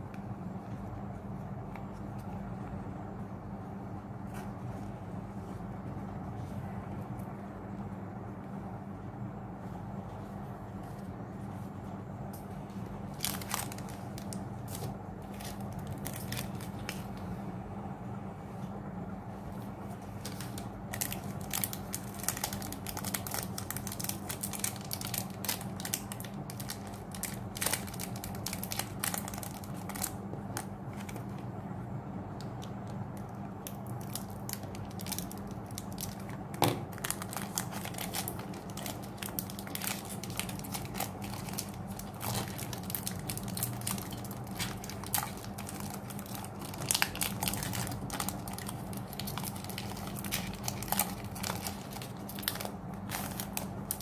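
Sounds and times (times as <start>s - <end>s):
foil wrappers crinkling and tearing: 13.0s - 17.3s, 20.0s - 31.4s, 32.6s - 54.0s.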